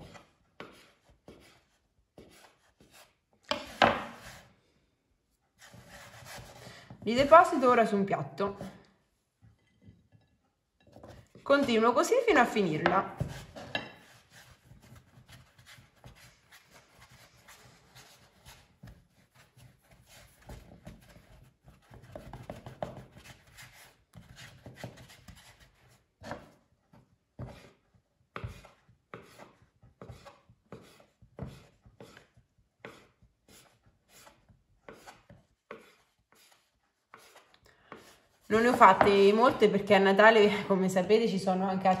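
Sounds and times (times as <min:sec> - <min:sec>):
hands rubbing dough: 0:05.5 - 0:07.4.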